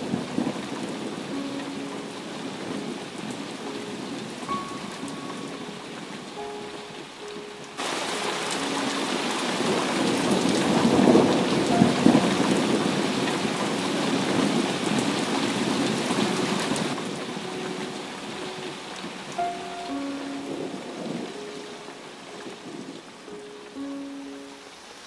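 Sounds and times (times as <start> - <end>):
heavy rain pouring: 0.0 - 25.0
thunder rumbling: 7.8 - 21.8.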